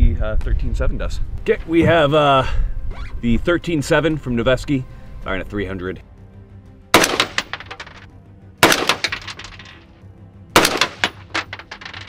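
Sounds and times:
rifle shots with ringing echo: 7.0s - 7.6s, 8.6s - 9.4s, 10.6s - 11.4s.

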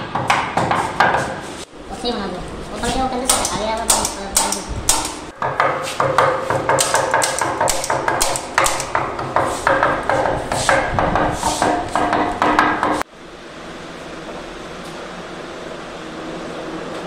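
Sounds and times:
steady hum: 0.0s - 17.0s
hammer tapping staples into wood: 3.3s - 10.9s.

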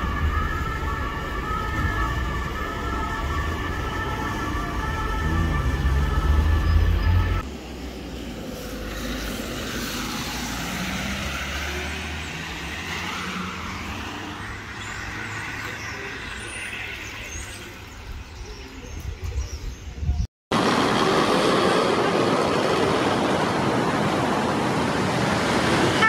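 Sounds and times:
tyres hissing on wet road: 7.4s - 17.8s, 20.5s - 26.0s.

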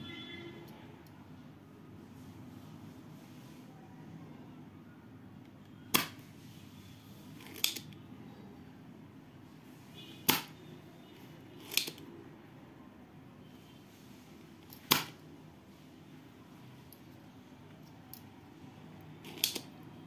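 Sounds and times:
desoldering pump snapping: 19.2s - 19.7s.

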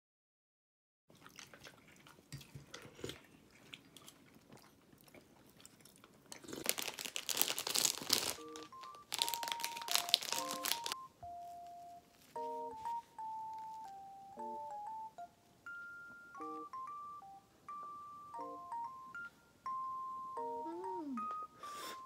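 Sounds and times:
chewing sounds: 1.1s - 11.0s
plastic wrapper crinkling: 6.4s - 14.0s
electronic melody background music: 8.2s - 22.0s.

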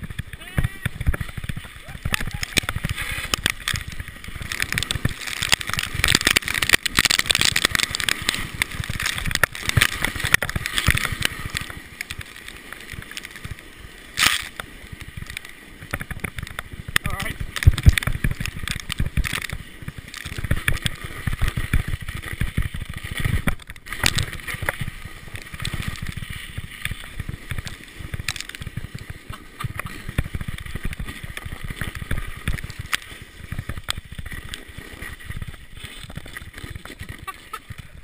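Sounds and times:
tyres hissing through snow: 0.1s - 15.8s, 19.5s - 38.0s.

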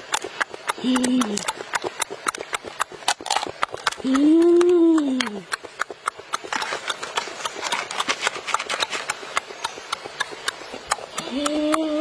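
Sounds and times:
wet crackling of crab shell: 0.0s - 12.0s
person humming mmm: 0.7s - 1.7s, 3.8s - 5.6s, 10.9s - 12.0s.

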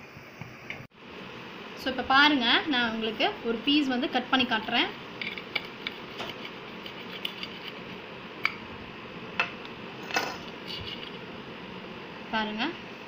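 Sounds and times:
steady low hiss: 0.0s - 13.0s
knife clicking and scraping on steel plate: 5.2s - 7.8s.

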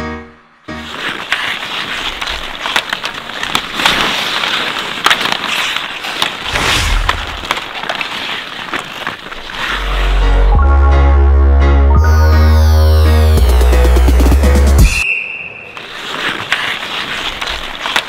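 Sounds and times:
skate blades scraping on ice: 0.7s - 10.6s, 14.8s - 18.0s
hockey sticks clacking on puck: 0.9s - 9.8s, 15.7s - 18.0s.

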